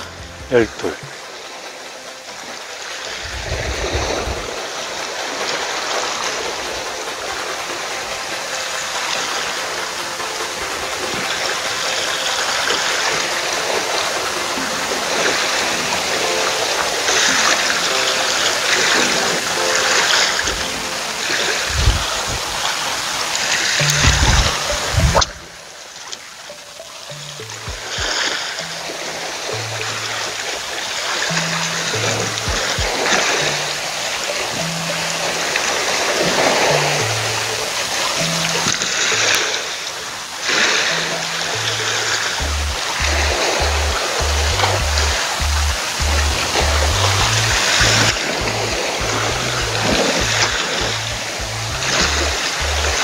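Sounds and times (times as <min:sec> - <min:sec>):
waves washing against rocks: 0:02.4 - 0:26.2
low thumps of waves: 0:03.1 - 0:16.1, 0:19.0 - 0:25.8, 0:27.0 - 0:39.4, 0:40.9 - 0:53.0.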